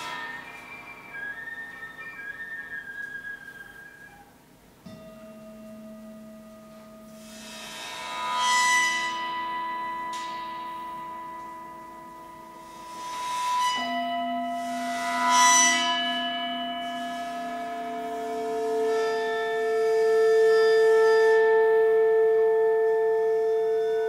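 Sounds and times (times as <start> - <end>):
singing bowl struck: 0.0 - 2.7
gong shimmer: 0.0 - 2.8
singing bowl tones: 0.0 - 7.5.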